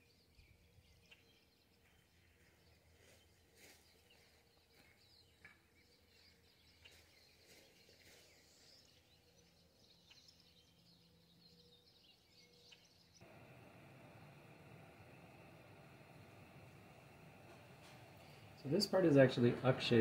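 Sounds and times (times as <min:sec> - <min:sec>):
faint bird chirps: 0:00.0 - 0:19.9
steady low hiss: 0:13.2 - 0:20.0.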